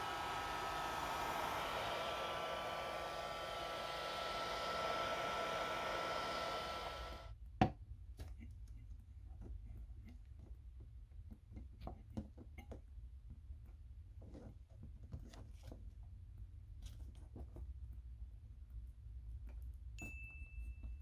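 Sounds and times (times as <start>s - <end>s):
hot-air blower fan whir: 0.0s - 7.3s.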